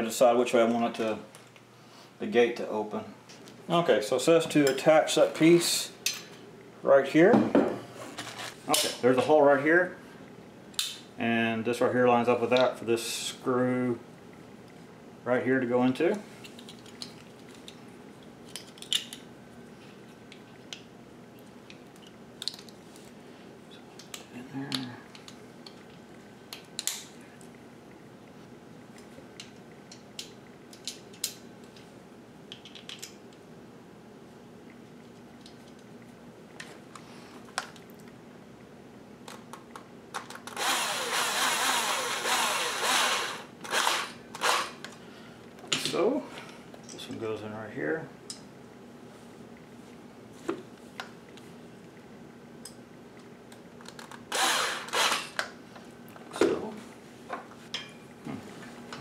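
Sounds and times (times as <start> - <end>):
cordless drill driving a screw: 40.5 - 44.8, 54.3 - 55.3.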